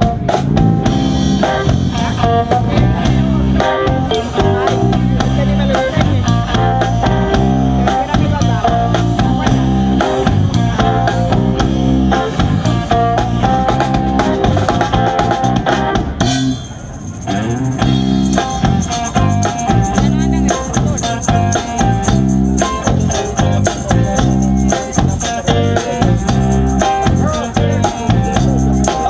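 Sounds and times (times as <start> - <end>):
guitar: 0.0 - 29.0
steady drum beat: 0.0 - 29.0
tambourine: 16.3 - 29.0.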